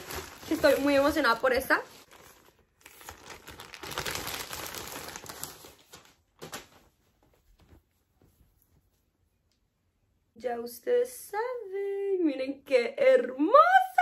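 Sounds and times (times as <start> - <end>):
clothing rustling: 0.0 - 9.5.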